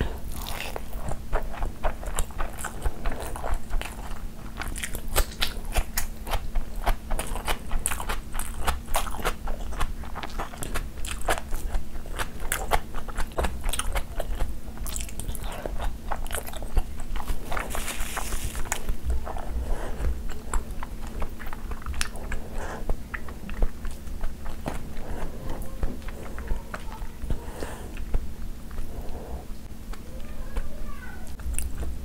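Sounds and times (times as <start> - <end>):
wet chewing and smacking: 0.0 - 30.7.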